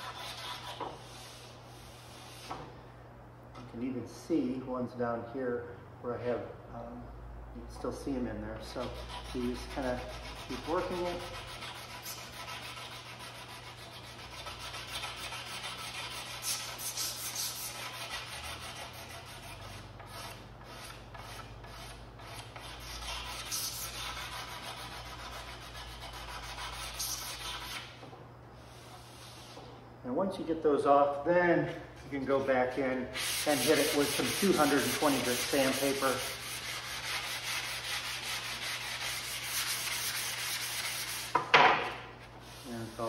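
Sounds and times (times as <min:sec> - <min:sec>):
razor blade scraping wood: 0:00.0 - 0:01.5, 0:08.7 - 0:27.9, 0:33.2 - 0:41.4
sandpaper rasping on varnished wood: 0:00.0 - 0:02.6, 0:08.6 - 0:27.9, 0:33.1 - 0:41.4, 0:42.4 - 0:43.0.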